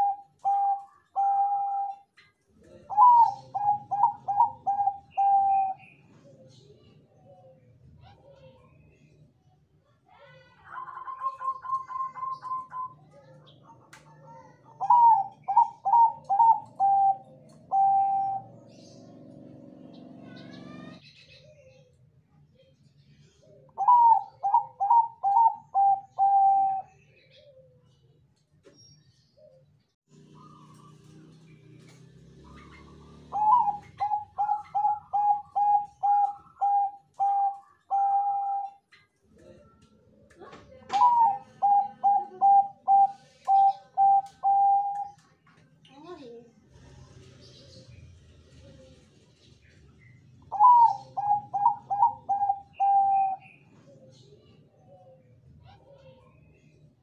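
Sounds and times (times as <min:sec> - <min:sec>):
dove cooing: 0:00.0 - 0:07.6, 0:10.7 - 0:22.0, 0:23.4 - 0:28.0, 0:29.4 - 0:40.1, 0:40.7 - 0:45.3, 0:50.4 - 0:56.8.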